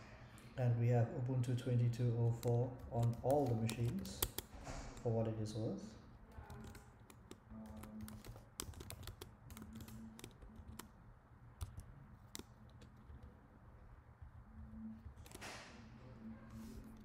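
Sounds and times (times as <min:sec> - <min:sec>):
faint keyboard typing: 0:01.4 - 0:05.2, 0:06.2 - 0:11.0, 0:11.6 - 0:13.4, 0:14.2 - 0:15.4.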